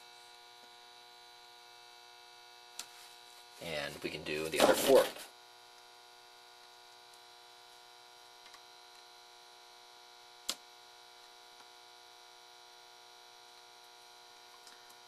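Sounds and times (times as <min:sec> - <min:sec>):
faint electrical hum: 0:00.0 - 0:15.0.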